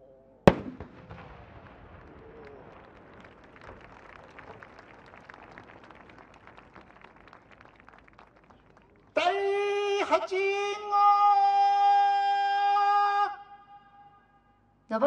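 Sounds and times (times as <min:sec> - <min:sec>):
firework boom: 0:00.5 - 0:03.8
rumble with crackles: 0:00.8 - 0:09.1.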